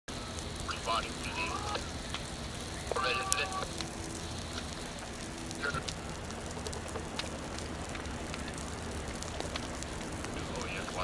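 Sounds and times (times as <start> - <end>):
fire crackling and popping: 0.1 - 11.0
low hum: 0.1 - 11.0
steady rushing hiss: 0.1 - 11.0.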